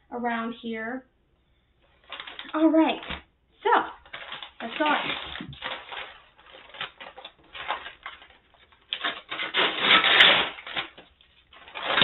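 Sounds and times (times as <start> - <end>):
paper crinkling and rustling: 1.9 - 12.0
paper mailer being torn open: 4.0 - 12.0.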